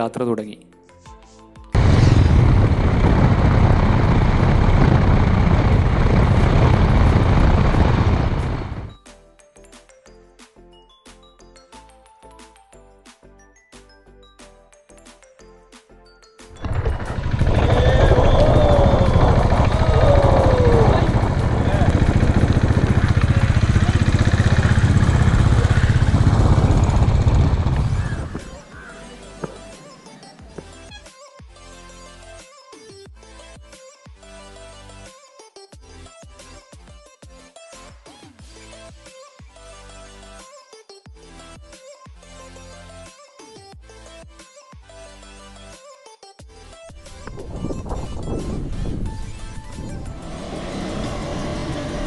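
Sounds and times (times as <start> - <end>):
motorcycle engine running: 1.8 - 8.9, 16.6 - 29.7, 49.7 - 52.0
wind buffeting microphone: 1.8 - 8.9, 16.6 - 28.7, 47.1 - 52.0
deep rumble: 1.8 - 9.0, 16.6 - 28.6, 47.2 - 52.0.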